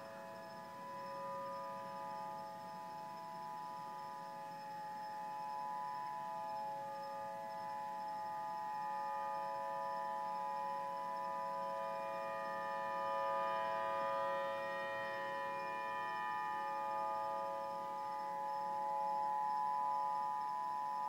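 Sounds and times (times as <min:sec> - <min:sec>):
warning siren steady tone: 0:00.0 - 0:21.0.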